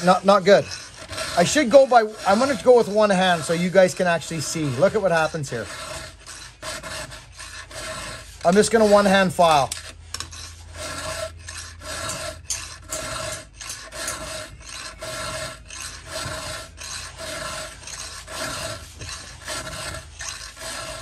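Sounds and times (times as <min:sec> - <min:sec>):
file rasping on saw chain: 0:00.0 - 0:21.0.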